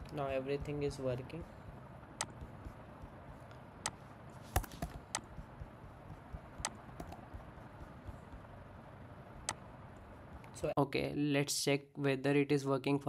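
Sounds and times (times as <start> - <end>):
computer clicks: 2.2 - 2.8, 3.8 - 5.4, 6.6 - 7.4.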